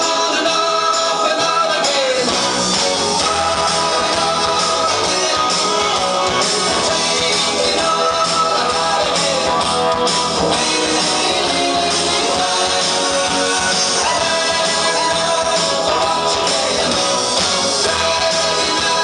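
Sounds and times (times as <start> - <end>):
rock and roll music with guitar: 0.0 - 19.0.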